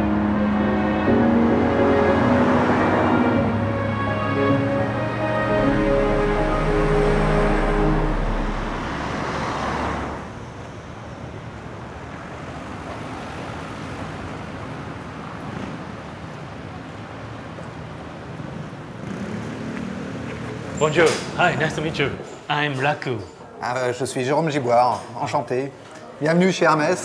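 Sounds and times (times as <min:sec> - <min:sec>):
music: 0:00.0 - 0:09.0
city street traffic: 0:00.0 - 0:27.0.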